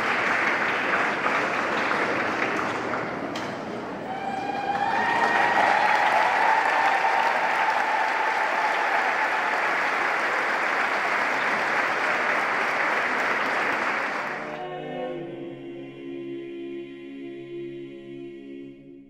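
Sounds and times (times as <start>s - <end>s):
crowd cheering: 0.0s - 3.0s, 3.9s - 14.6s
crowd applauding: 0.0s - 3.3s, 4.1s - 14.6s.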